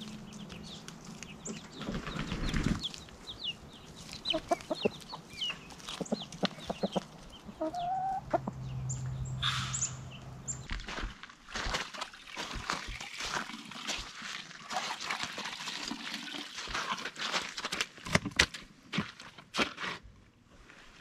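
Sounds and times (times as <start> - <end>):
chickens clucking: 0.0 - 10.6.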